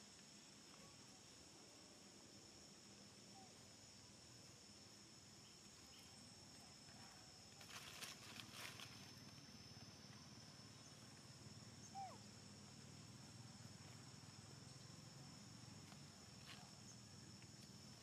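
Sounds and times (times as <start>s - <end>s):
soft rustles and clicks: 7.6s - 9.2s.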